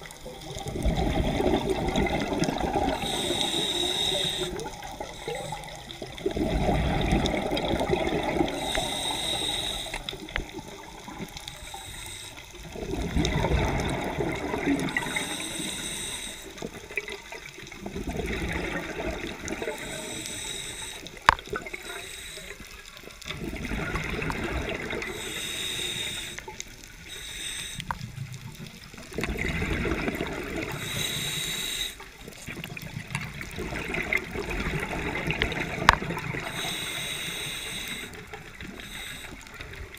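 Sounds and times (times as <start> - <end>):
underwater exhale bubbles: 0.0 - 39.9
regulator inhale hiss: 2.8 - 6.0, 8.3 - 10.8, 11.4 - 12.8, 14.8 - 16.9, 19.6 - 23.2, 25.0 - 28.4, 30.7 - 32.2, 36.3 - 39.9.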